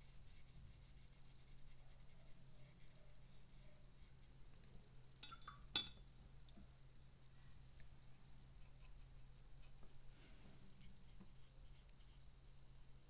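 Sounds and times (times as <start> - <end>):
paintbrush brushing paper: 0.0 - 4.4, 8.5 - 12.6
light ringing clinks: 5.2 - 6.1.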